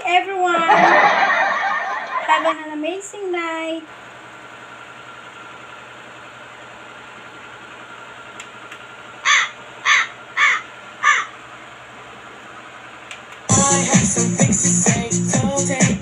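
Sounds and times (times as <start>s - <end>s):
crow cawing: 9.2s - 11.4s.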